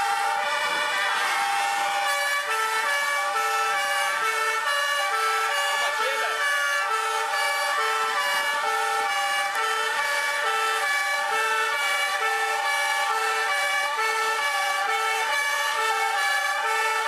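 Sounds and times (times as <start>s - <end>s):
fire engine sirens wailing: 0.0s - 17.0s.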